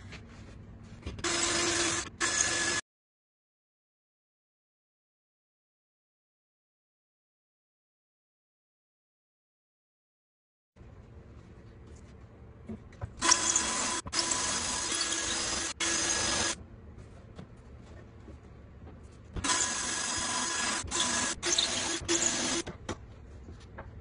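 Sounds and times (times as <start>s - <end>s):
cordless drill boring into board: 1.2s - 2.8s, 13.2s - 16.6s, 19.4s - 22.6s.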